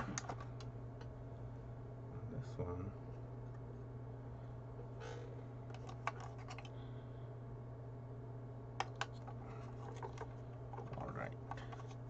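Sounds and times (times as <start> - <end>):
hands clicking plastic parts: 0.0 - 1.1, 8.8 - 12.0
steady low hum: 0.0 - 12.0.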